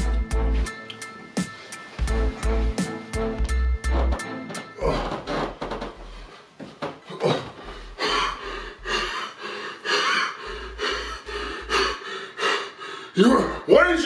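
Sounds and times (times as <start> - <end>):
man breathing heavily: 5.9 - 13.7.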